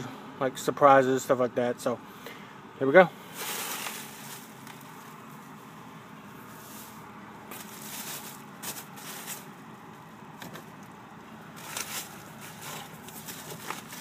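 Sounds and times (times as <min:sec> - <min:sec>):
steady low hiss: 0:00.0 - 0:14.0
bubble wrap and paper rustling: 0:03.4 - 0:05.2, 0:06.6 - 0:09.6, 0:11.5 - 0:14.0.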